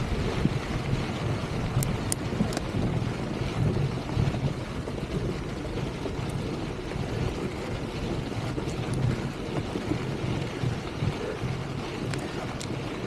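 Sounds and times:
bike tyres on dirt trail: 0:00.0 - 0:13.0
wind buffeting microphone: 0:00.0 - 0:13.0.

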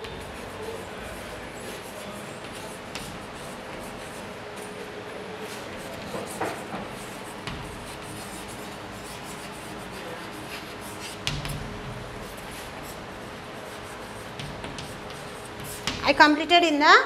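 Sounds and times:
chalk scratching on chalkboard: 0:00.0 - 0:16.1.

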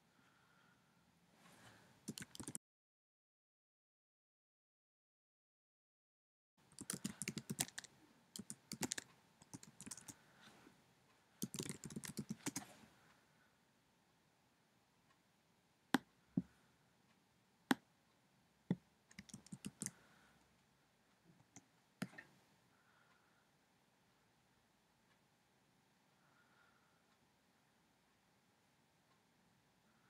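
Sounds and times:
typing on computer keyboard: 0:02.0 - 0:02.6, 0:06.7 - 0:10.2, 0:11.4 - 0:12.7, 0:19.1 - 0:20.0.

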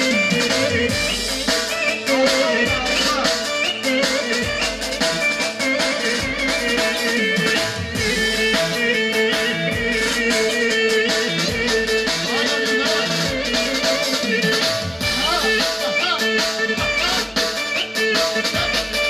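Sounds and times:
upbeat dance music: 0:00.0 - 0:19.0.

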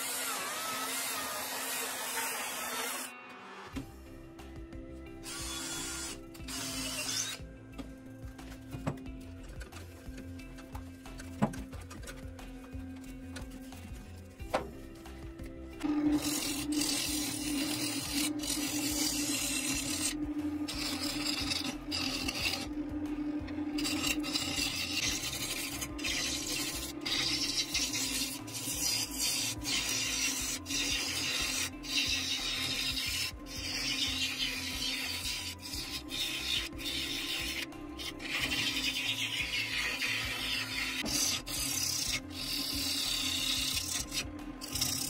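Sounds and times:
gouge scraping wood: 0:08.4 - 0:14.9, 0:16.0 - 0:45.0
lathe motor hum: 0:15.8 - 0:31.3.

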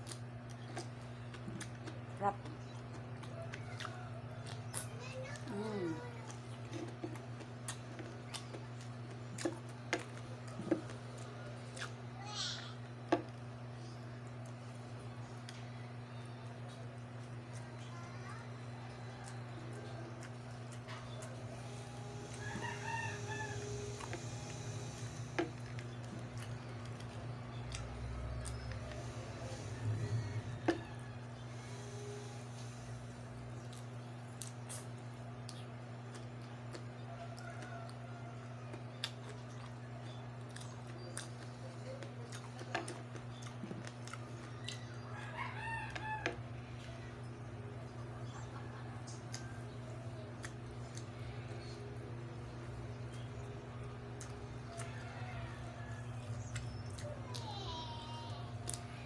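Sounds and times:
chewing clicks and pops: 0:00.0 - 0:05.6, 0:06.3 - 0:12.0, 0:33.6 - 0:38.0, 0:38.7 - 0:45.0
steady low hum: 0:00.0 - 0:59.0
rooster crowing: 0:21.5 - 0:25.2, 0:28.9 - 0:32.7, 0:37.0 - 0:38.7, 0:44.7 - 0:47.0, 0:54.6 - 0:56.6.

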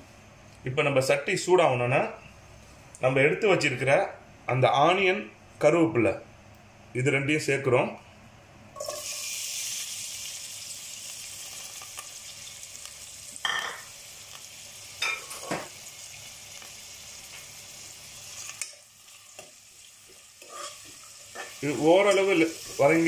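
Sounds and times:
onions sizzling in hot oil: 0:08.8 - 0:23.0
spoon stirring in pot: 0:20.4 - 0:22.2.

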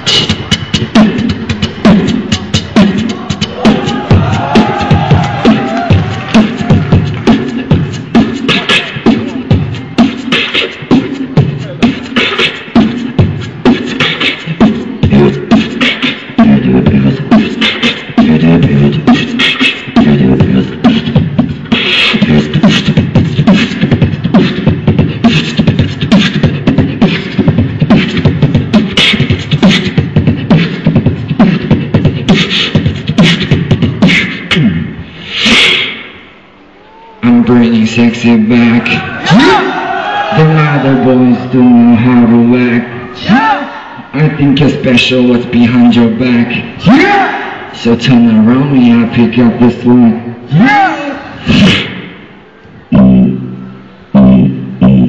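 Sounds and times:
hummed vocal bass line: 0:00.0 - 0:35.0
beatboxing beat: 0:00.0 - 0:36.3, 0:44.0 - 0:50.8, 0:51.4 - 0:52.3.

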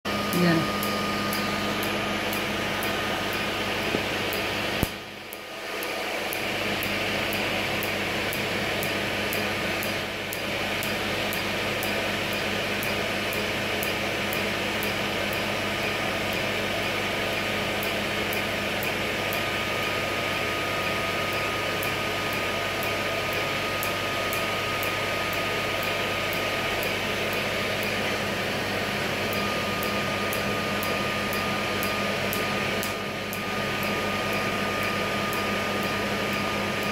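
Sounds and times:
air blower rushing and humming: 0:00.1 - 0:12.8
sharp laser clicks: 0:00.8 - 0:14.4.

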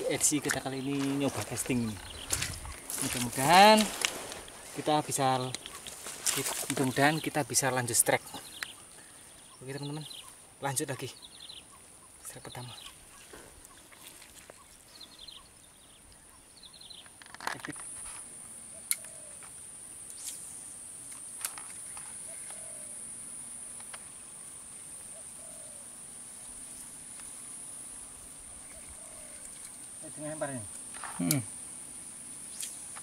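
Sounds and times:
high-pitched insect drone: 0:00.0 - 0:13.0, 0:17.6 - 0:33.0
faint bird chirps: 0:08.1 - 0:17.1, 0:28.6 - 0:31.4.

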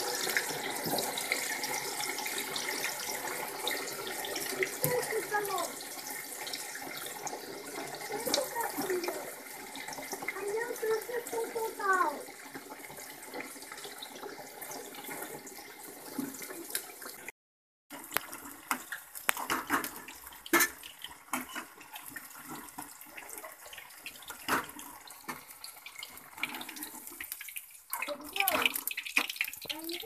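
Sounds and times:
oil crackles and pops: 0:00.0 - 0:05.6, 0:06.8 - 0:11.9, 0:17.9 - 0:30.0
deep-frying sizzle: 0:00.0 - 0:17.3, 0:17.9 - 0:30.0.

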